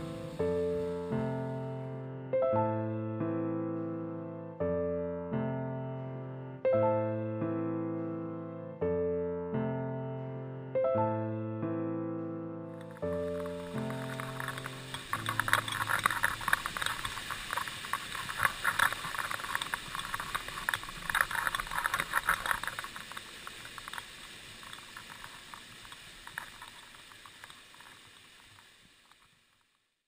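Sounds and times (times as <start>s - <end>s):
piano music: 0.0s - 17.3s
small waterfall splashing: 12.8s - 29.7s.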